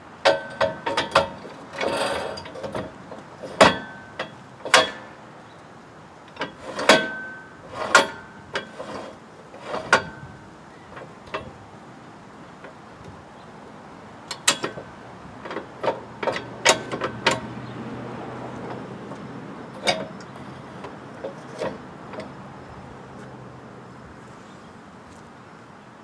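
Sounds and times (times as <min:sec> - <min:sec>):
metal clanks and clicks: 0:00.2 - 0:05.2, 0:06.3 - 0:11.6, 0:14.3 - 0:17.8, 0:18.4 - 0:22.4.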